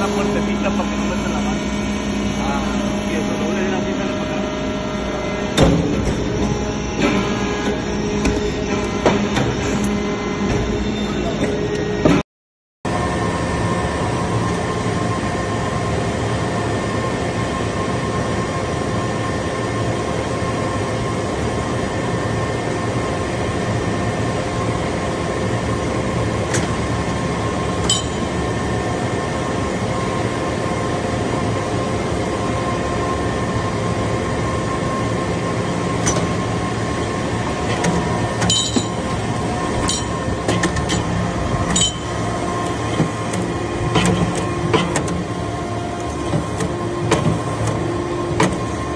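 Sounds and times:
hydraulic press hum and whine: 0:00.0 - 0:12.2, 0:12.9 - 0:48.9.

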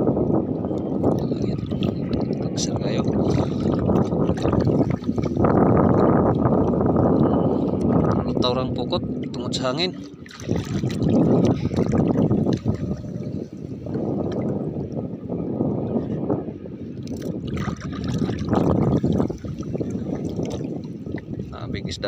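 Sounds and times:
water splashing and dripping: 0:01.0 - 0:06.9, 0:09.2 - 0:15.0, 0:17.0 - 0:21.5.

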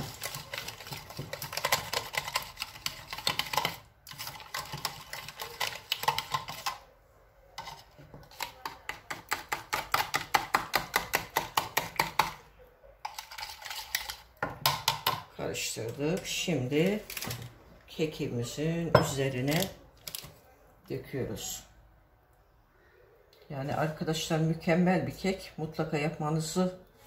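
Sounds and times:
whisk clicking against jug: 0:00.0 - 0:06.8.

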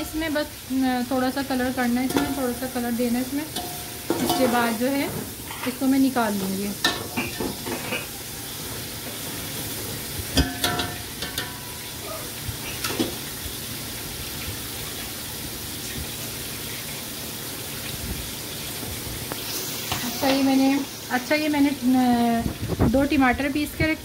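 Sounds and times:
onions sizzling in oil: 0:00.0 - 0:24.0
metal clank: 0:03.6 - 0:04.6, 0:10.4 - 0:11.7.

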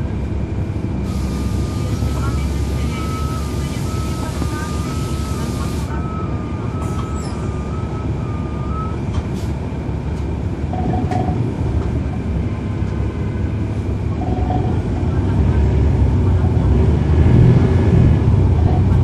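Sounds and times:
diesel bus engine rumbling: 0:00.0 - 0:19.0.

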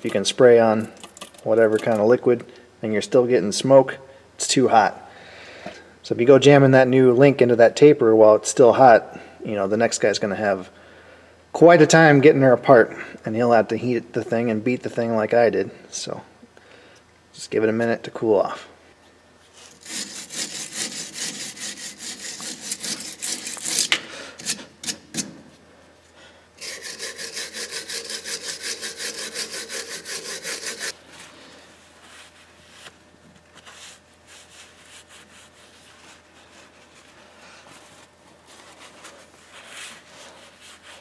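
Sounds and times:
wire brush scrubbing rust: 0:19.5 - 0:25.1, 0:26.6 - 0:31.0.

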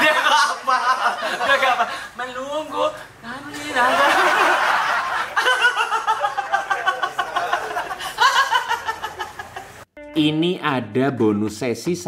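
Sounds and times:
people laughing: 0:00.0 - 0:02.2, 0:03.4 - 0:09.8.

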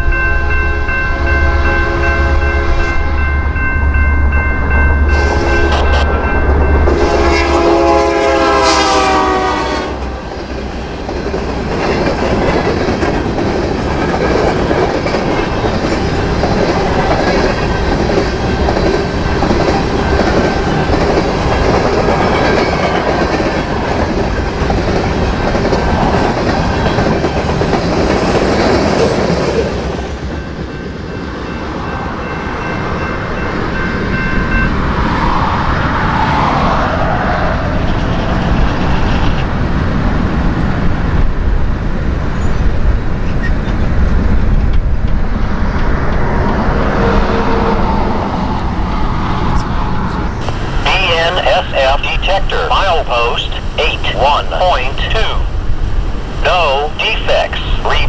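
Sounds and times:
crossing bell ringing: 0:00.0 - 0:07.8, 0:30.2 - 0:35.0
locomotive air horn blasts: 0:05.1 - 0:06.0, 0:06.9 - 0:10.2
clickety-clack of train wheels: 0:10.5 - 0:30.9, 0:42.4 - 0:48.0.

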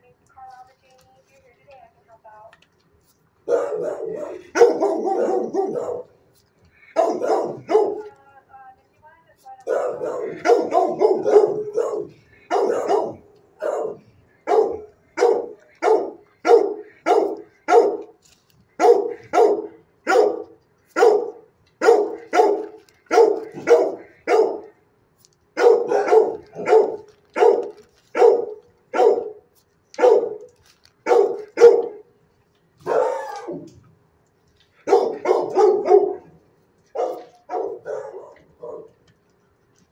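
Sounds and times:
dog barking: 0:03.4 - 0:06.2, 0:06.9 - 0:08.2, 0:09.6 - 0:18.2, 0:18.8 - 0:24.8, 0:25.6 - 0:29.4, 0:30.0 - 0:32.1, 0:32.8 - 0:33.7, 0:34.8 - 0:39.0.

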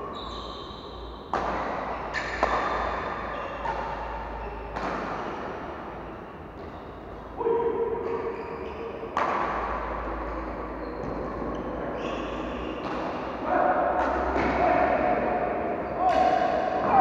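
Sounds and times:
court noise: 0:00.0 - 0:17.0
racket striking shuttlecock: 0:01.2 - 0:06.0, 0:09.0 - 0:10.4, 0:12.6 - 0:14.6.

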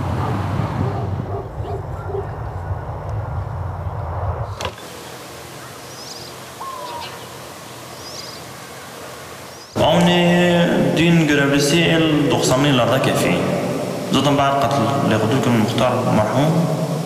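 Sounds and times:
low steady rumble: 0:00.0 - 0:04.6
bird chirps: 0:05.6 - 0:09.8.

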